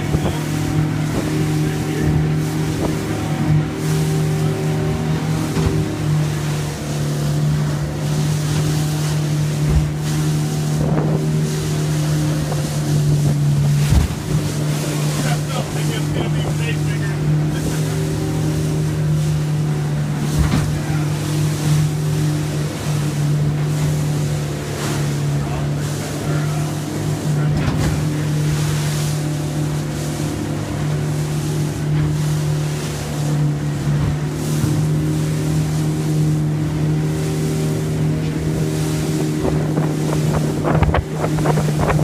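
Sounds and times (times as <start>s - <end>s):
boat engine drone: 0.0s - 42.0s
water washing and spray: 0.0s - 42.0s
wind: 0.0s - 42.0s
hull thump: 5.4s - 6.0s, 9.5s - 11.4s, 12.1s - 14.9s, 20.2s - 21.0s, 27.4s - 28.8s.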